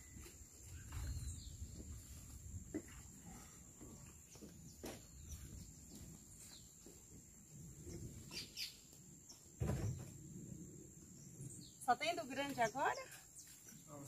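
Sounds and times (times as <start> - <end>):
dull thump: 9.6 - 10.2.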